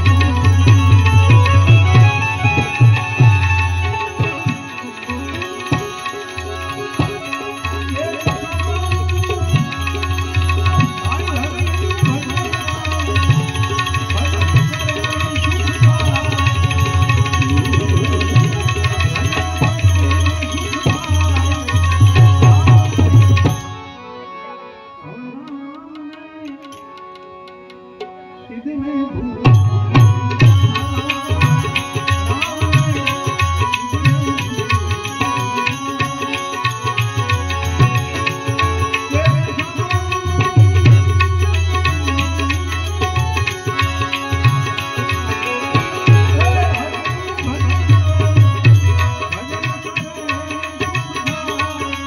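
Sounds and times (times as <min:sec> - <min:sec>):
man singing: 0:00.0 - 0:23.7, 0:30.3 - 0:52.0
harmonium: 0:00.0 - 0:52.0
tabla: 0:00.0 - 0:52.0
keyed banjo: 0:29.9 - 0:52.0.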